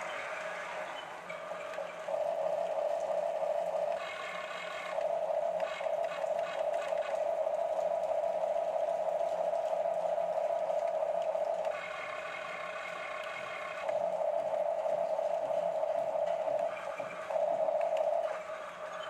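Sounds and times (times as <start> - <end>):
toy gear motors whining: 0.0 - 7.5, 11.2 - 14.0.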